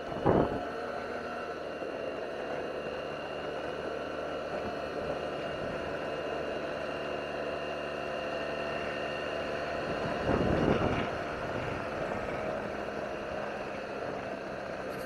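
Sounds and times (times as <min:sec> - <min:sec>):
wind noise: 0:00.0 - 0:00.7, 0:09.8 - 0:12.2
scooter engine running under load: 0:00.0 - 0:15.0.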